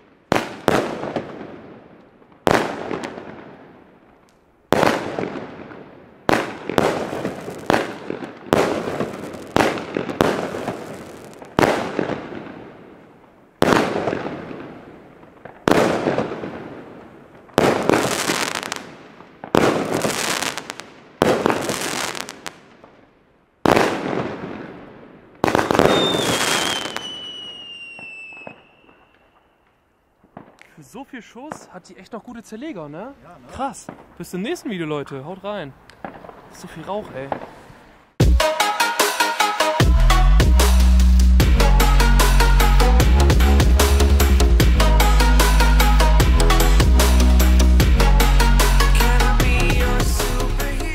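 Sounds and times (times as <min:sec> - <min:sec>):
firework bangs with crackle: 0:00.0 - 0:29.6, 0:30.2 - 0:31.8, 0:33.6 - 0:34.5, 0:36.0 - 0:38.4
descending firework whistle: 0:25.8 - 0:30.2.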